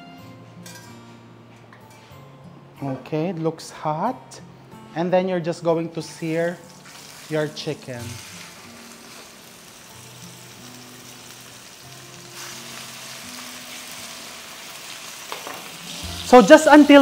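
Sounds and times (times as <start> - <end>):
soft background music: 0.0 - 17.0
chicken sizzling in oil: 6.5 - 17.0.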